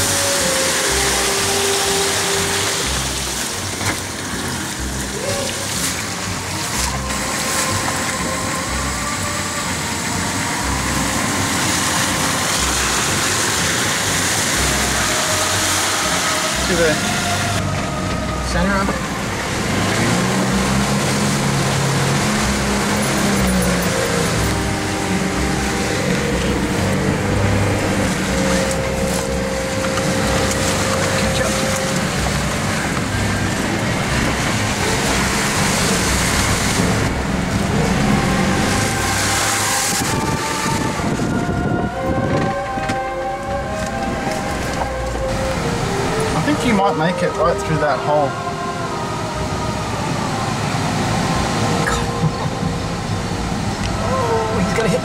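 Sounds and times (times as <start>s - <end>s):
suv engine running: 0.0s - 55.0s
tyre and road noise: 0.0s - 55.0s.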